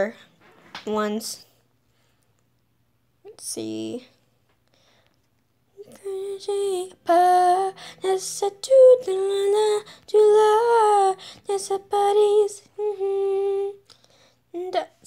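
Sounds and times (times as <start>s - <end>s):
girl singing unaccompanied: 5.7s - 15.0s.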